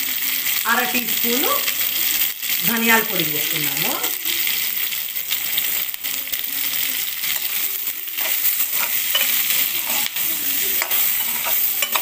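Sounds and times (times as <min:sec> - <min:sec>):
vegetables sizzling in hot oil: 0:00.0 - 0:12.0
metal spatula scraping pan: 0:07.2 - 0:12.0.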